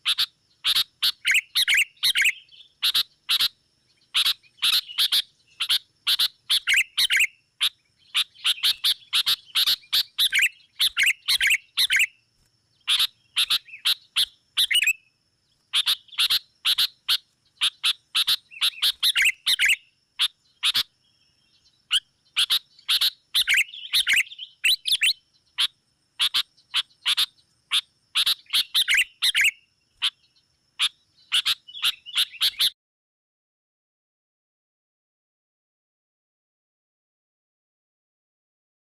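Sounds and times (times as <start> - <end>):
bulbuls chattering calls: 0.0 - 12.1, 12.8 - 15.0, 15.7 - 20.9, 21.9 - 32.7.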